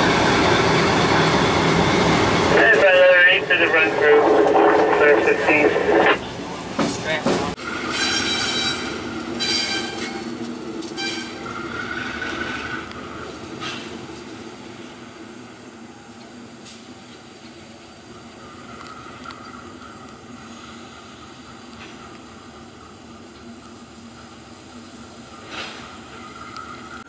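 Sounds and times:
diesel locomotive engine running: 0.0s - 27.0s
train wheel squeal: 7.6s - 13.8s.

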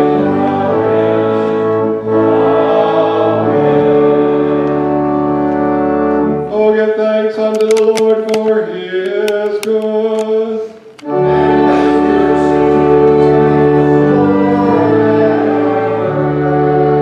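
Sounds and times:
congregation singing a hymn: 0.0s - 17.0s
pipe organ chords: 0.0s - 17.0s.

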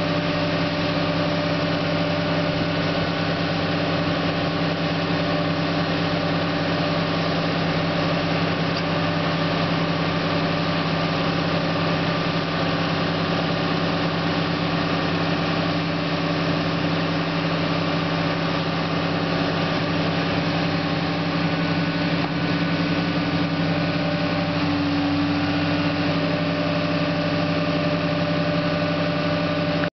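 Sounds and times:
excavator diesel engine running: 0.0s - 29.9s.

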